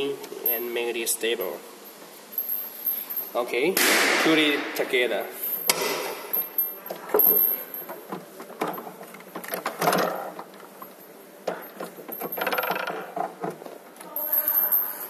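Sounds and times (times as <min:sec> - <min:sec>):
metal frames clicking and knocking: 0:04.4 - 0:14.6.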